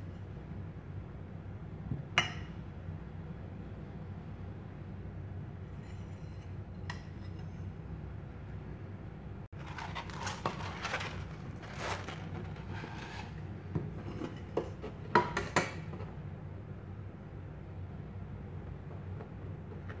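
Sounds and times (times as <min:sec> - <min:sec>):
low steady hum: 0:00.0 - 0:20.0
sandpaper rustling and sliding: 0:09.6 - 0:13.4.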